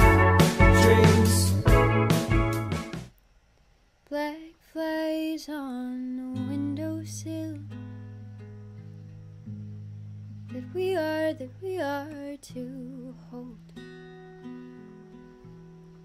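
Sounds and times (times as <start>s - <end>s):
acoustic guitar: 0.0s - 3.1s, 6.1s - 16.0s
song with strong beat: 0.0s - 3.1s
woman singing softly: 4.1s - 7.8s, 10.5s - 13.8s.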